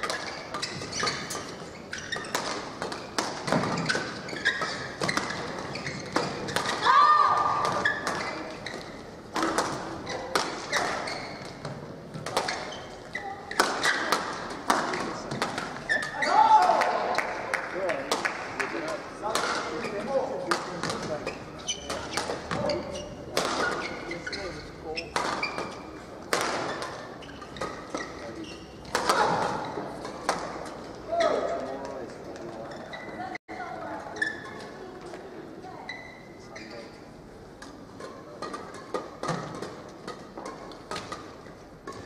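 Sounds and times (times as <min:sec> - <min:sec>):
shoes squeaking on floor: 0:00.0 - 0:14.1, 0:15.0 - 0:16.5, 0:20.9 - 0:34.9, 0:35.6 - 0:37.1
rackets striking shuttlecock: 0:02.2 - 0:12.8, 0:13.5 - 0:16.2, 0:21.8 - 0:24.2
echoing knocks and claps: 0:16.6 - 0:19.7.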